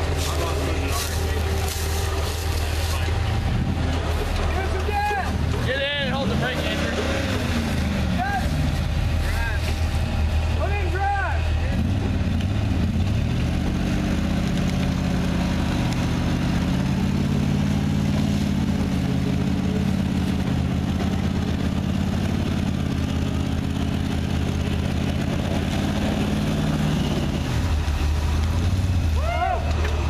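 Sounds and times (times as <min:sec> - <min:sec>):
vehicle engine running under load: 0:00.0 - 0:30.0.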